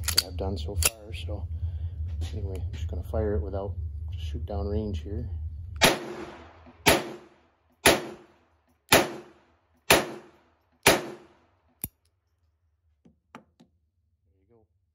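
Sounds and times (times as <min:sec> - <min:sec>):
pistol shots: 0:05.8 - 0:08.3, 0:08.9 - 0:11.4.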